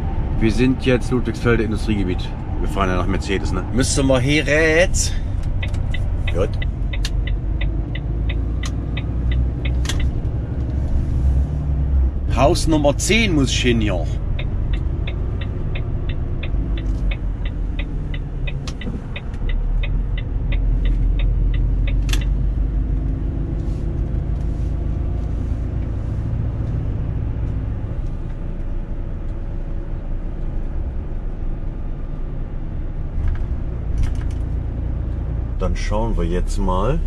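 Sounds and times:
truck engine and road rumble: 0:00.0 - 0:37.0
turn indicator ticking: 0:03.1 - 0:10.9, 0:12.4 - 0:29.6.

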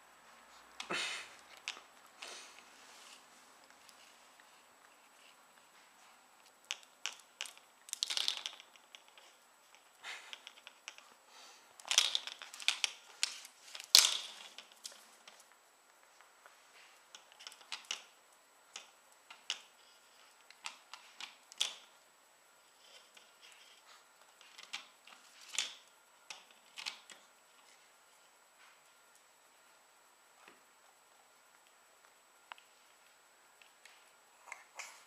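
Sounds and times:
plastic clip clattering on tile floor: 0:06.7 - 0:09.3, 0:11.8 - 0:15.4, 0:17.1 - 0:18.1, 0:20.5 - 0:21.9, 0:24.5 - 0:27.2.

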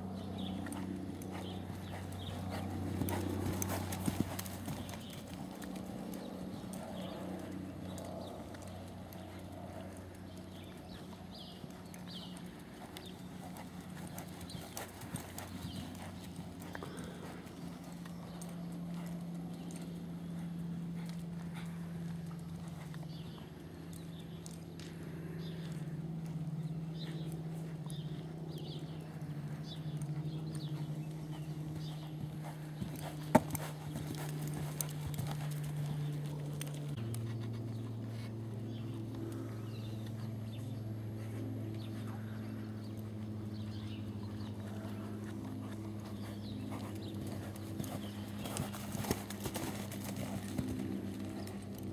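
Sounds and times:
steady low hum: 0:00.0 - 0:51.9
horse hoofbeats on sand: 0:00.1 - 0:24.5, 0:26.6 - 0:38.1, 0:43.1 - 0:51.9.

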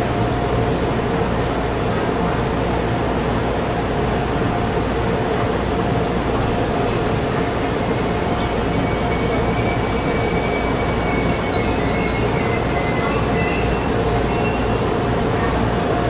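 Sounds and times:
electric train rumbling: 0:00.0 - 0:16.0
high wheel squeals: 0:07.3 - 0:14.9.

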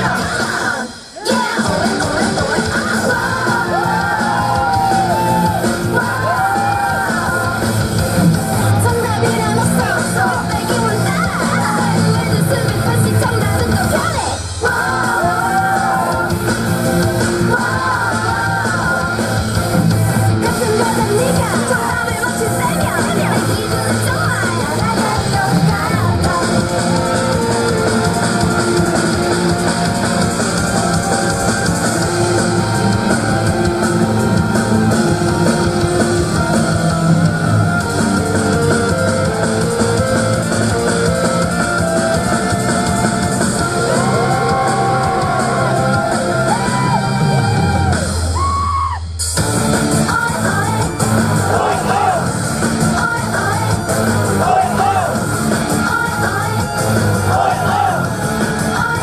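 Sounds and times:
live pop song with female singing: 0:00.0 - 0:07.9, 0:08.7 - 0:16.6, 0:17.2 - 0:19.4, 0:20.3 - 0:27.5, 0:52.9 - 0:53.8, 0:55.7 - 0:57.9, 0:58.6 - 0:59.0.

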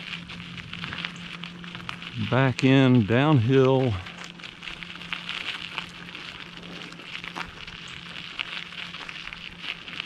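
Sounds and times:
bicycle tyres crackling on road: 0:00.0 - 0:10.0.

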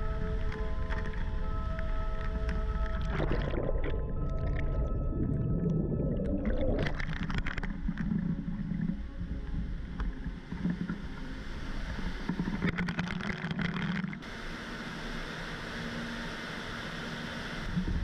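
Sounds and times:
water sloshing: 0:02.3 - 0:09.0.

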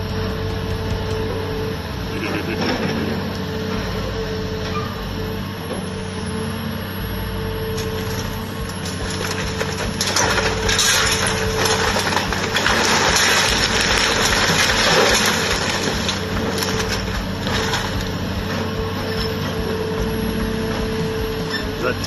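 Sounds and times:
excavator engine running: 0:00.0 - 0:22.0
timber cracking and crashing: 0:07.8 - 0:18.4.

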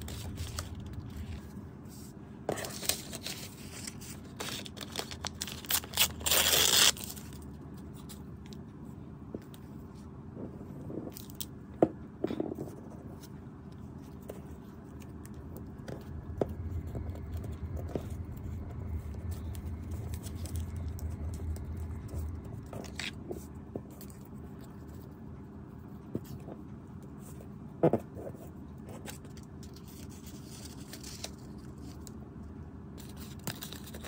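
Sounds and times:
low rumble: 0:00.0 - 0:07.6, 0:10.2 - 0:25.9.

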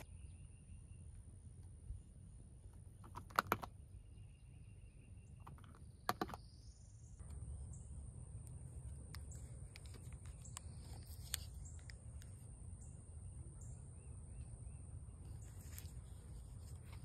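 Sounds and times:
faint low rumble: 0:03.8 - 0:17.0.

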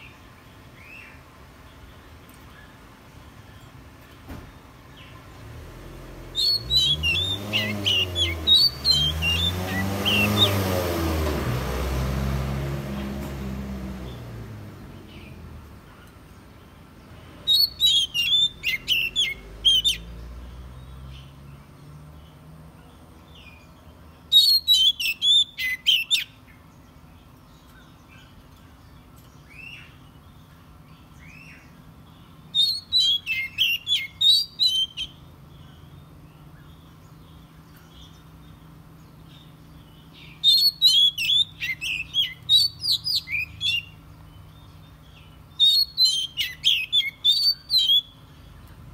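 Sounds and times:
vehicle passing: 0:05.2 - 0:16.0, 0:16.8 - 0:24.0
bird singing whistled phrases: 0:06.3 - 0:10.6, 0:17.4 - 0:20.1, 0:24.3 - 0:26.4, 0:32.5 - 0:35.2, 0:40.2 - 0:44.0, 0:45.5 - 0:48.2.

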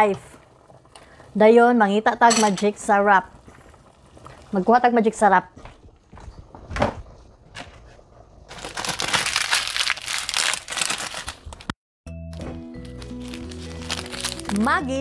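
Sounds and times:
plastic packaging crackling: 0:08.5 - 0:11.8, 0:12.8 - 0:15.0
background music: 0:12.1 - 0:15.0.

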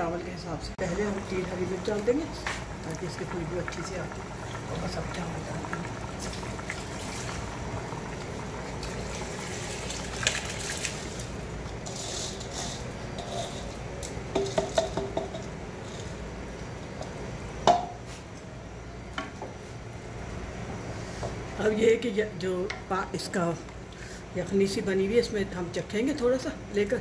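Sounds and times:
broth bubbling: 0:00.8 - 0:11.9
utensil scraping metal pot: 0:11.7 - 0:13.8
knock on pot: 0:14.4 - 0:15.4, 0:17.6 - 0:18.0.

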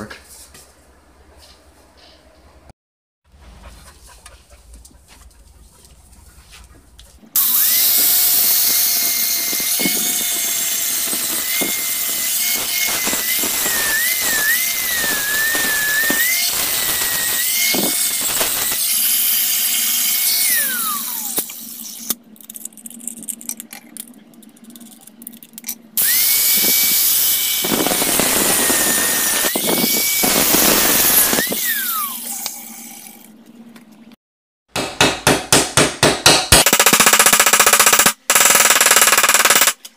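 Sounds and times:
angle grinder grinding metal: 0:07.4 - 0:22.2, 0:26.0 - 0:33.0
hammer strikes on metal: 0:34.7 - 0:36.6.

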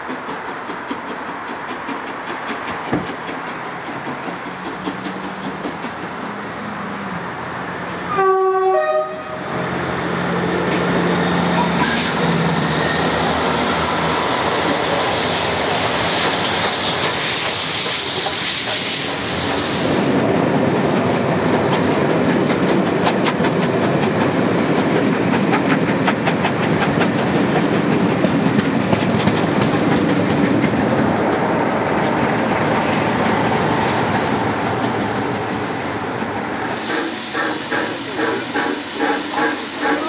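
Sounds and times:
wheels clicking over rail joints: 0:00.0 - 0:06.9, 0:20.7 - 0:36.4
steam train rumbling past: 0:00.0 - 0:40.0
hissing steam: 0:09.3 - 0:20.3, 0:36.4 - 0:40.0.

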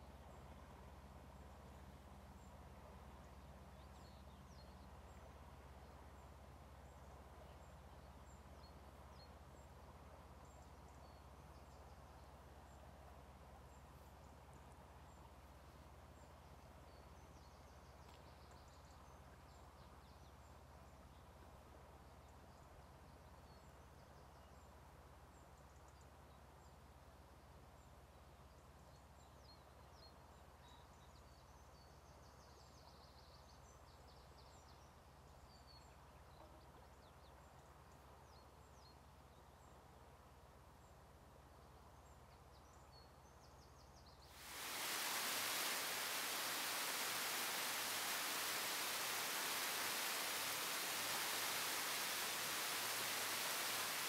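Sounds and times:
loud even hiss: 0:44.3 - 0:54.0
low steady hum: 0:44.4 - 0:54.0.

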